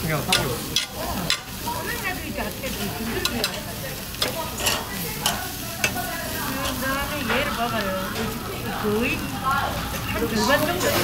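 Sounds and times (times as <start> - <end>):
meat sizzling on a grill: 0.0 - 11.0
metal tongs clicking on grate: 0.3 - 1.6, 3.2 - 8.3.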